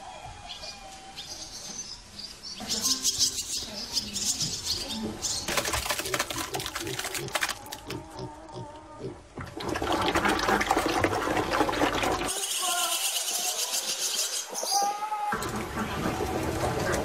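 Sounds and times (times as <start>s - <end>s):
birds chirping: 0.4s - 9.1s, 12.3s - 15.3s
birds fluttering wings: 5.5s - 8.0s.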